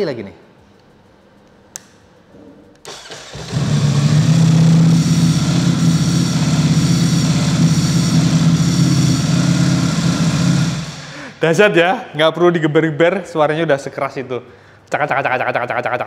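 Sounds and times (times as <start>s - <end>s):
motorcycle engine starting and idling: 2.9s - 11.4s.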